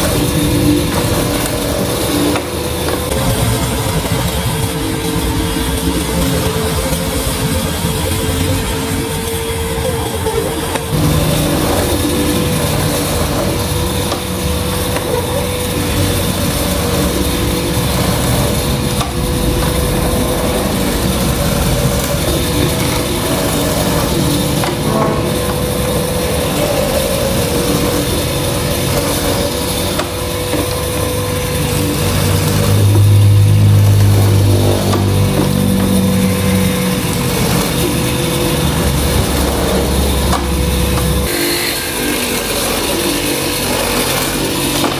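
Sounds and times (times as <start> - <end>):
electric motor running: 0.0 - 44.9.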